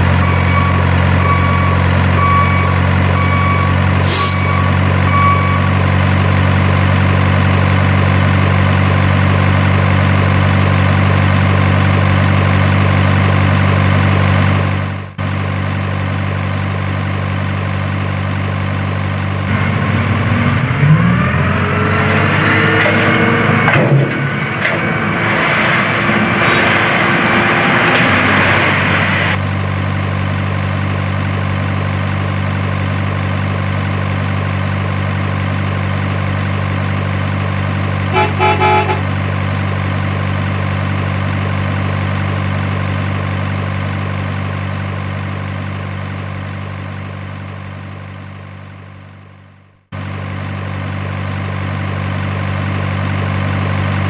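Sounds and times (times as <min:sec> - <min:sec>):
diesel truck engine idling: 0:00.0 - 0:22.5, 0:27.1 - 0:54.0
rising whine: 0:19.5 - 0:29.4.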